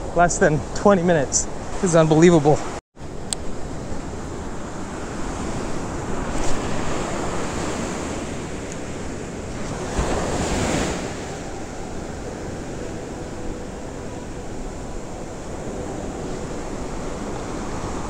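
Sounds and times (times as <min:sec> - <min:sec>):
wind buffeting microphone: 0:00.0 - 0:18.0
surf breaking on beach: 0:03.5 - 0:13.6.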